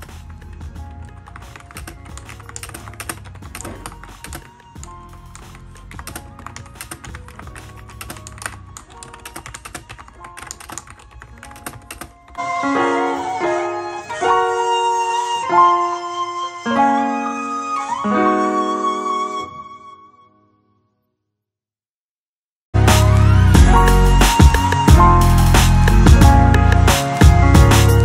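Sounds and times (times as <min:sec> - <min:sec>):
quiet background music: 0:00.0 - 0:19.2
piano music: 0:00.0 - 0:20.3, 0:22.8 - 0:28.0
mechanical keyboard typing: 0:01.0 - 0:12.4.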